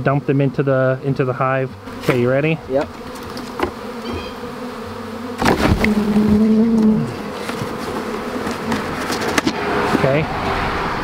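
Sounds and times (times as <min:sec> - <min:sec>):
bee swarm buzzing: 0:00.0 - 0:11.0
rustling and knocks: 0:02.8 - 0:04.4, 0:05.4 - 0:10.0.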